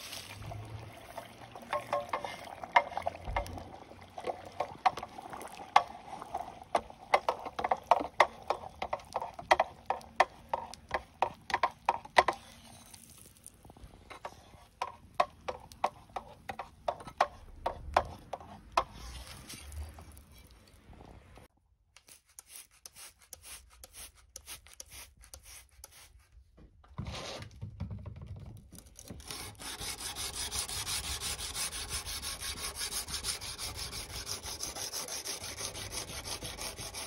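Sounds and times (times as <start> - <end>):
hot blade crackling in oil: 0.0 - 17.0.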